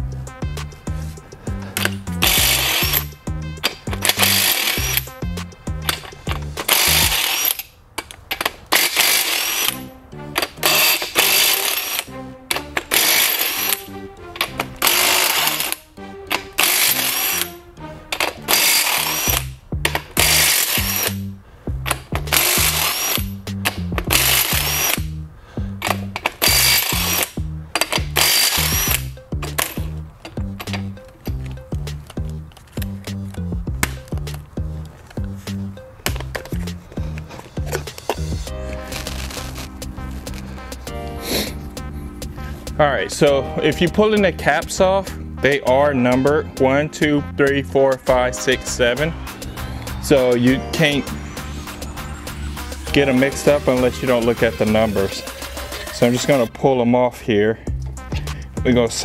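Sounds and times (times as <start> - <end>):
background music with bassline: 0.0 - 7.5, 9.0 - 56.8, 57.5 - 59.0
impact wrench bursts: 1.6 - 5.2, 5.8 - 21.2, 21.8 - 25.1, 25.8 - 31.5.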